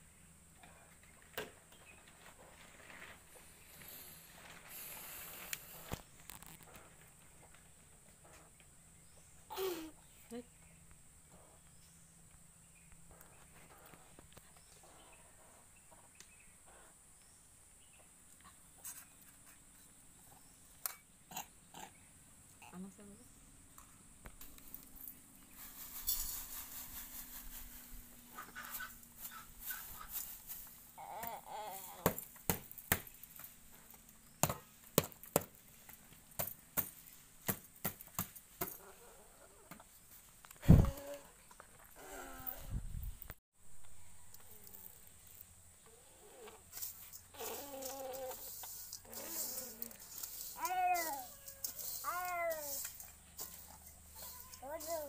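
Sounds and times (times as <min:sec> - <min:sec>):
faint high hiss: 0:03.1 - 0:06.4.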